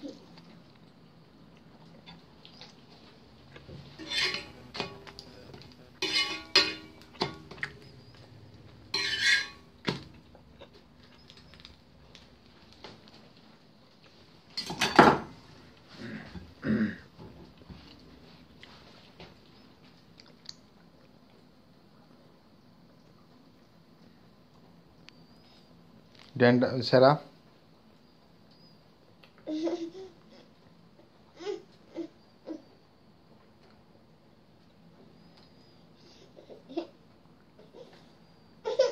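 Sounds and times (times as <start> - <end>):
dishes and utensils clinking: 3.8 - 7.8, 8.9 - 10.0, 14.6 - 15.3.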